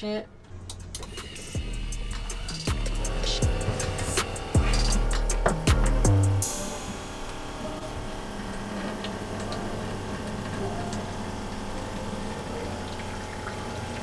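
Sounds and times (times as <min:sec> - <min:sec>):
pump humming: 0:00.7 - 0:14.0
water pouring into plastic jug: 0:08.1 - 0:14.0.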